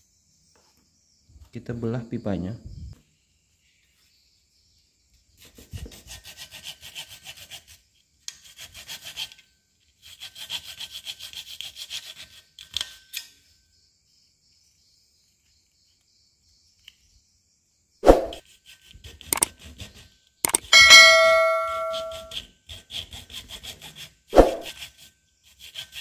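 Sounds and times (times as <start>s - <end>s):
hacksaw cutting plastic pipe: 18.7s - 19.9s
sharp knocks: 20.5s - 22.3s.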